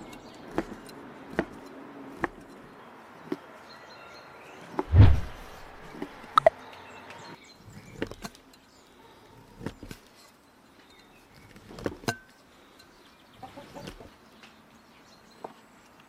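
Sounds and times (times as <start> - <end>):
knife chopping on wooden board: 0.5 - 2.4.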